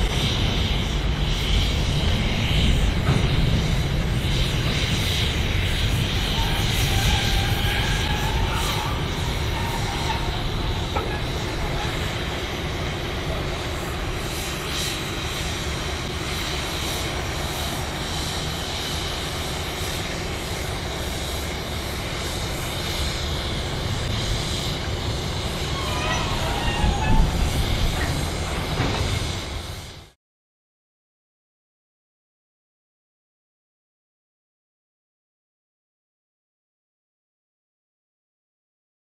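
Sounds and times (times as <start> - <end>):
diesel locomotive rumbling: 0.0 - 30.2
faint high squeaks: 25.7 - 28.2.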